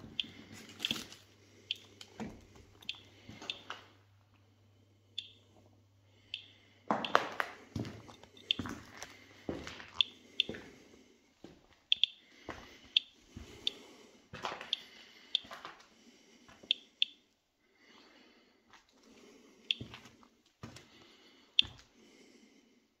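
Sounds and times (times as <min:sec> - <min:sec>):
footsteps crunching over debris: 0:06.9 - 0:10.7, 0:14.3 - 0:14.7.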